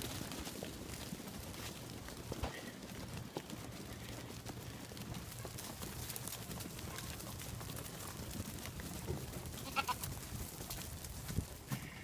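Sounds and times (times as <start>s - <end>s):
goats shuffling on dirt: 0.0s - 12.0s
goat bleating: 9.6s - 10.1s.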